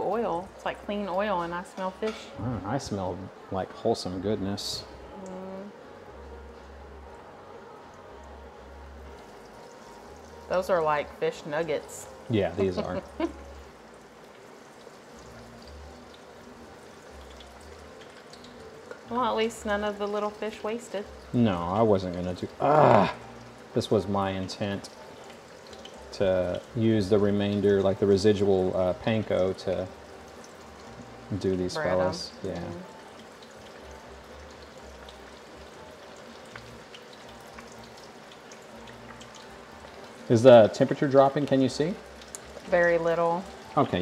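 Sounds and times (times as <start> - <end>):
hot oil sizzling and bubbling: 0.0 - 44.0.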